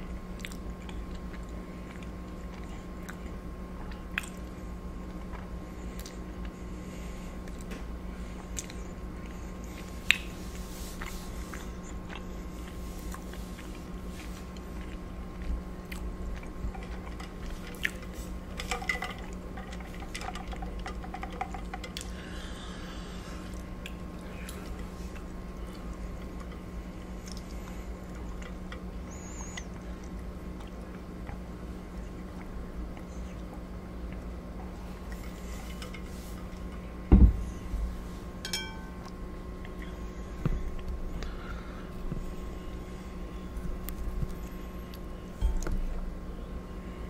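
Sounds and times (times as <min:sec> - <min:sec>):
low hum: 0:00.0 - 0:47.0
chewing and mouth sounds: 0:00.2 - 0:06.6, 0:08.4 - 0:22.2, 0:23.4 - 0:36.8.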